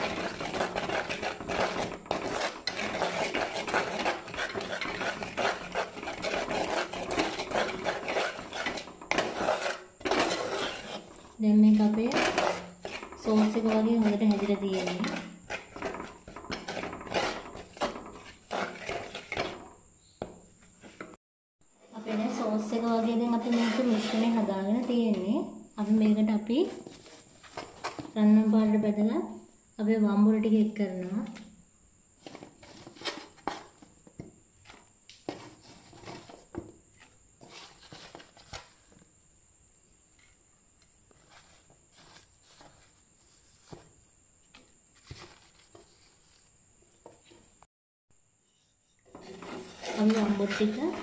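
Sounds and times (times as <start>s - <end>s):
spoon scraping a pot: 0.0s - 19.8s, 21.8s - 25.6s, 48.5s - 51.0s.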